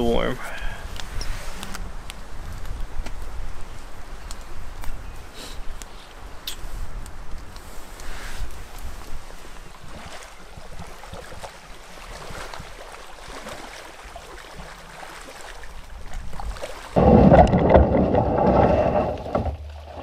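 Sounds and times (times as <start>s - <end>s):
wind buffeting microphone: 0.0s - 12.8s, 15.6s - 19.5s
faint rustle: 0.4s - 10.4s
small crackles: 0.9s - 9.6s.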